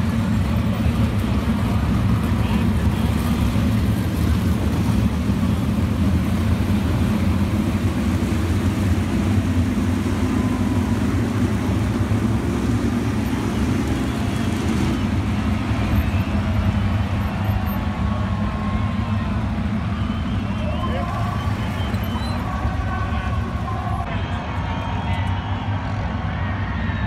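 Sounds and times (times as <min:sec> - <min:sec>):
race car engines roaring: 0:00.0 - 0:27.0.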